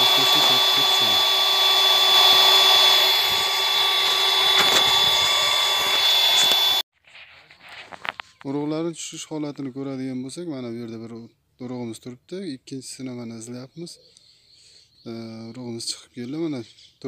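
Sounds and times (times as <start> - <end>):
electric blower whining: 0.0 - 6.8.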